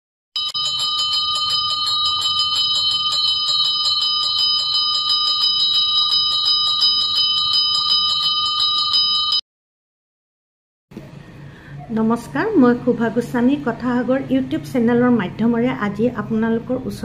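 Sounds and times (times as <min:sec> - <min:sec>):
bell rung rapidly: 0:00.4 - 0:09.4.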